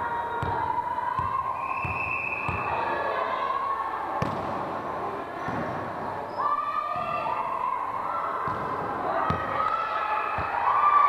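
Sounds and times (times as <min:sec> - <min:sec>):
echoing voices: 0:00.0 - 0:11.0
referee's whistle: 0:01.6 - 0:02.8
ball bouncing on wooden floor: 0:04.2 - 0:04.6.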